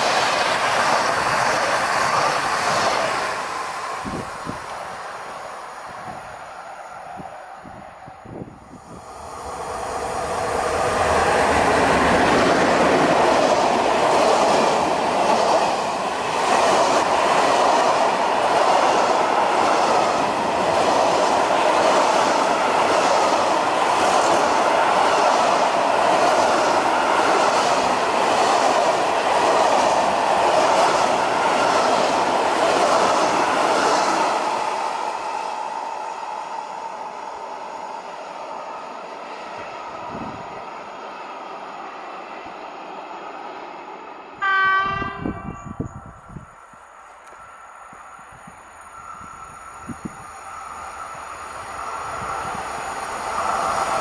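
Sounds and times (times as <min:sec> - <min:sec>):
freight train passing: 0:00.0 - 0:54.0
wheels clacking on rails: 0:09.3 - 0:35.7.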